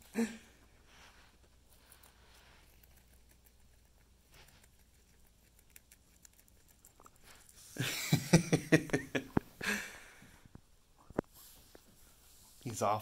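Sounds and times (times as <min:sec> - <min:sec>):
guinea pigs chewing: 0:00.0 - 0:07.8.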